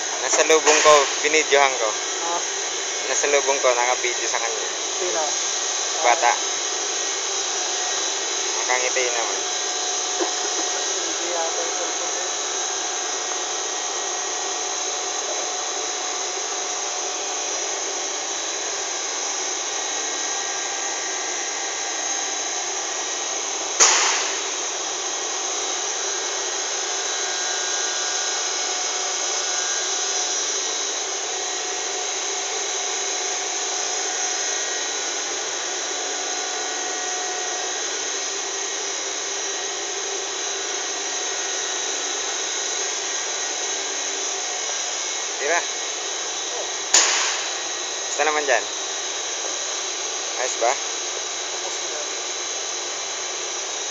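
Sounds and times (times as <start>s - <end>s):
factory machinery noise: 0.0s - 19.2s, 19.8s - 28.6s, 44.6s - 49.6s
sharp bang: 0.6s - 1.4s, 23.8s - 24.6s, 47.0s - 47.7s.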